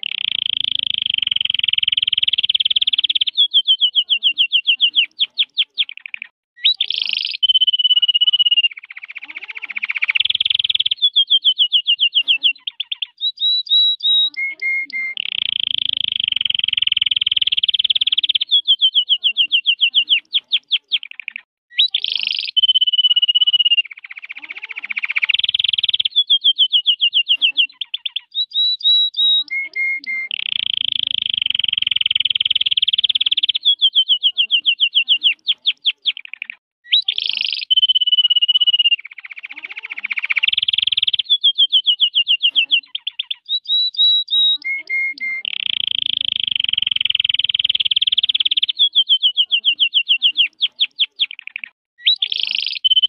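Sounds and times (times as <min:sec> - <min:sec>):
canary singing trills: 0:00.0 - 0:53.0.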